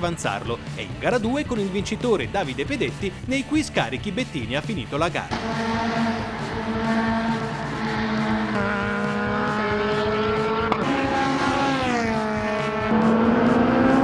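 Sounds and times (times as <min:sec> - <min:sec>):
race car engines at high revs: 0:05.3 - 0:14.0.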